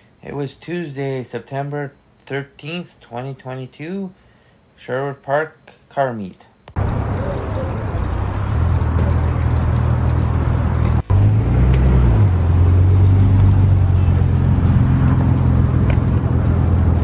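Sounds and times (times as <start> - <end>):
car engine running: 6.8 - 17.0.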